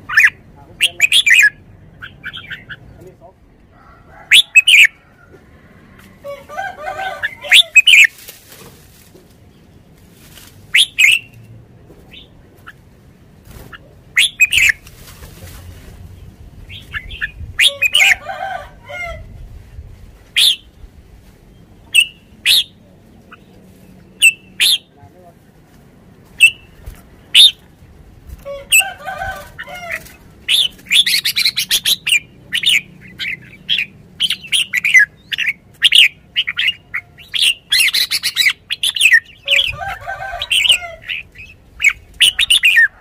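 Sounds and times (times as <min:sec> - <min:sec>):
bird calling sharp notes: 0:00.0 - 0:03.0, 0:07.1 - 0:08.2, 0:10.7 - 0:11.4, 0:13.7 - 0:14.8, 0:20.4 - 0:20.7, 0:21.8 - 0:23.5, 0:24.1 - 0:25.0, 0:27.4 - 0:27.6, 0:29.6 - 0:43.0
bird warbling: 0:00.0 - 0:03.0, 0:07.1 - 0:08.2, 0:13.6 - 0:14.9, 0:28.5 - 0:43.0.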